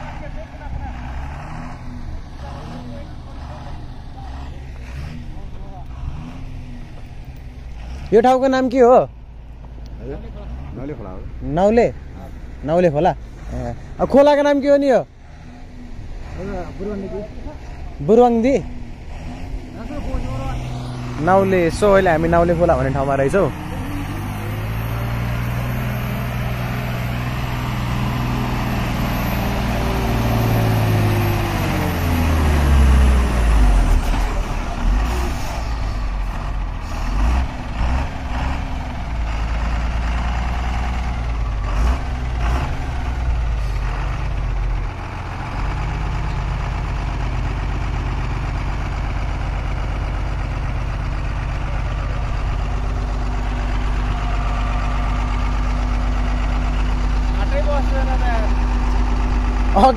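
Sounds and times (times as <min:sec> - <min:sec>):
diesel truck engine: 0:00.0 - 0:59.9.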